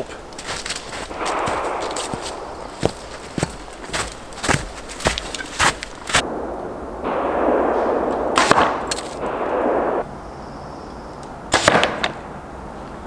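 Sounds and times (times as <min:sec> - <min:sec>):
footsteps crunching in snow: 0:00.0 - 0:06.2.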